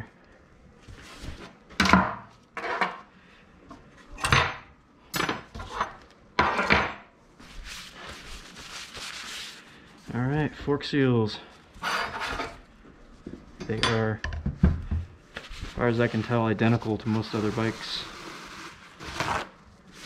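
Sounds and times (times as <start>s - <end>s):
soft rubbing: 7.4s - 10.4s, 15.2s - 20.0s.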